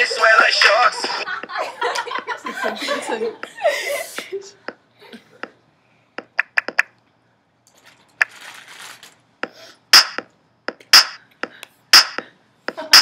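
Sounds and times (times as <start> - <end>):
sharp loud beat hits: 10.0 - 10.2, 10.9 - 11.2, 12.0 - 12.2.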